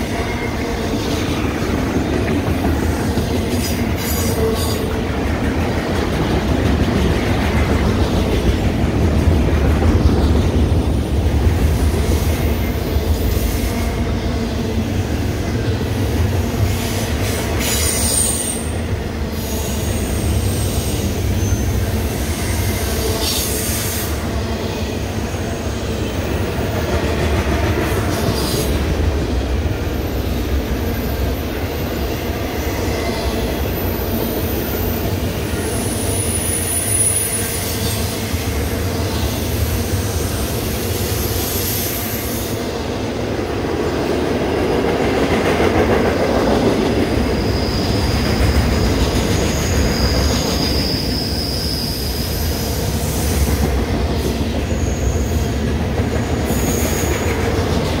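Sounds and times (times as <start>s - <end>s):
freight train cars rolling: 0.0s - 58.0s
high-pitched wheel squeals: 49.5s - 52.6s.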